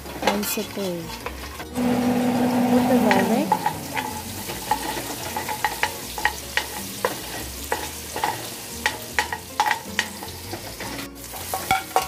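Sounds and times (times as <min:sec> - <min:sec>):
food sizzling: 0:00.8 - 0:12.0
metal spoon scraping and clinking pot: 0:03.1 - 0:12.0.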